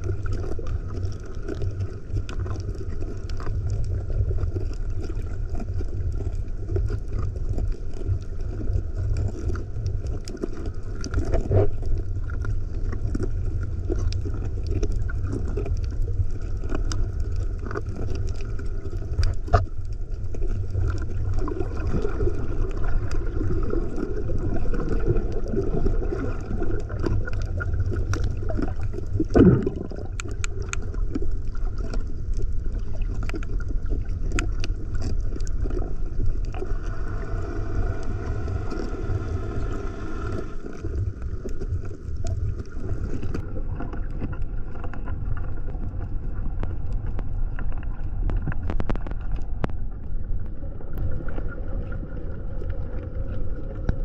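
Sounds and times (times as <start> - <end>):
muffled underwater rumble: 0.0 - 54.0
small clicks: 30.1 - 31.0.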